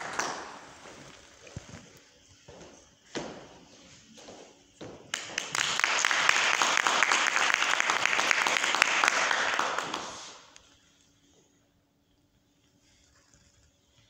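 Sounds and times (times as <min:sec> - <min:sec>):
audience applauding: 0:00.0 - 0:00.8, 0:05.1 - 0:10.5.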